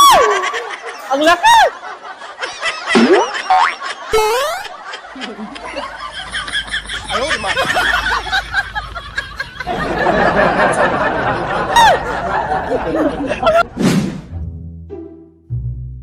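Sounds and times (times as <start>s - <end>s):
people laughing: 0.0s - 13.7s.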